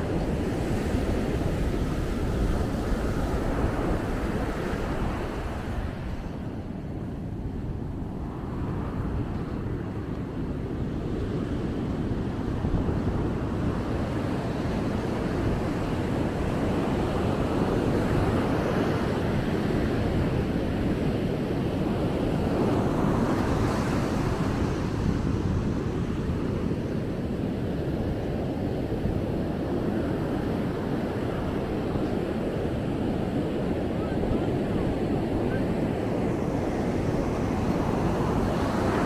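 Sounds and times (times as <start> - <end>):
ocean surf washing onto beach: 0.0 - 39.0
wind rumbling on microphone: 0.0 - 39.0.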